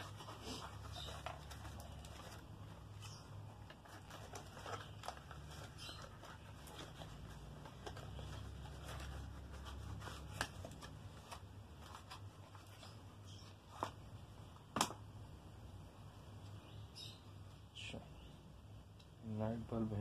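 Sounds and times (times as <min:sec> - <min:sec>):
packaging rustling: 0:00.0 - 0:14.0.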